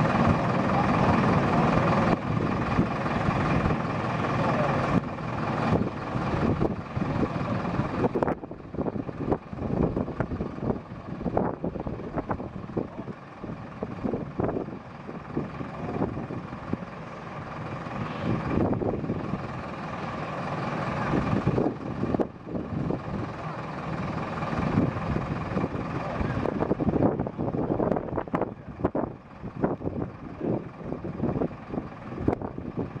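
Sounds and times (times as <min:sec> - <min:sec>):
truck engine running: 0:00.0 - 0:33.0
wind buffeting microphone: 0:04.8 - 0:19.7, 0:21.0 - 0:23.4, 0:24.0 - 0:33.0.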